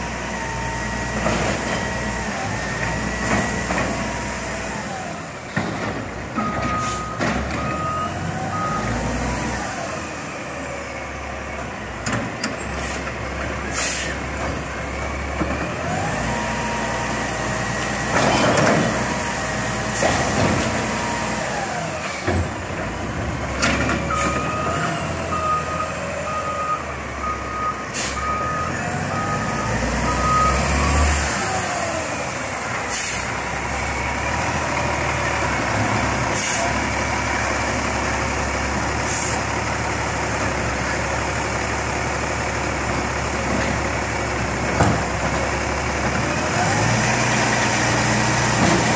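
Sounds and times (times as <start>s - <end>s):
air brake hisses: 13.7s - 14.2s, 27.9s - 28.3s, 32.9s - 33.9s, 36.3s - 36.8s, 39.1s - 39.5s.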